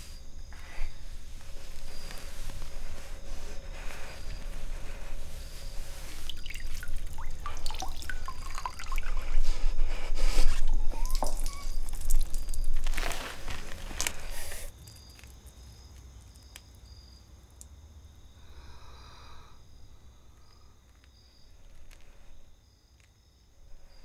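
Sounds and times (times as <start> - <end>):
water dripping into bucket: 6.2 - 9.6, 10.7 - 13.0.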